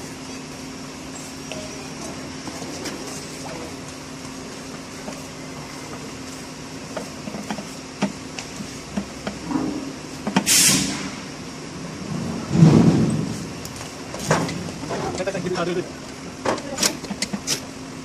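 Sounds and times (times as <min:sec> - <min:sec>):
steady hum: 0:00.0 - 0:18.0
short loud hiss: 0:10.4 - 0:11.3.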